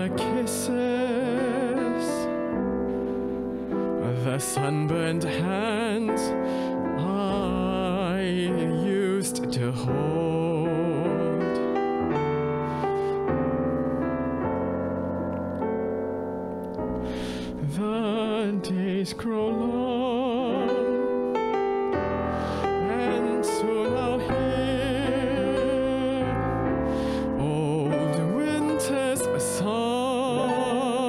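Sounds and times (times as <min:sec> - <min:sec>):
man singing with vibrato: 0:00.0 - 0:02.5, 0:04.0 - 0:11.8, 0:17.6 - 0:21.3, 0:22.6 - 0:31.0
digital piano chords: 0:00.0 - 0:31.0.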